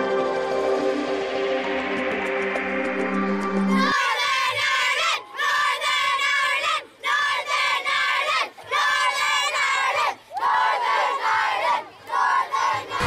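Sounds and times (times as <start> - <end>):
intro music: 0.0 - 4.0
children chanting and shouting: 3.5 - 13.0.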